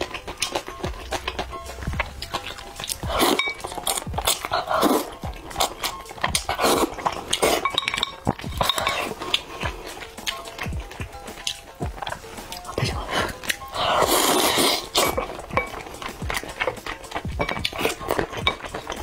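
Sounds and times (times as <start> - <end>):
wet chewing and slurping: 0.0 - 19.0.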